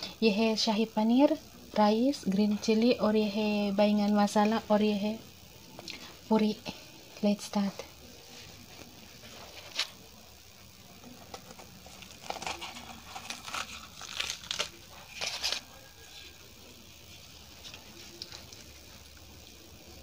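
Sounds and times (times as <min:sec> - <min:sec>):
crisp crackling and tearing: 0:11.2 - 0:16.4.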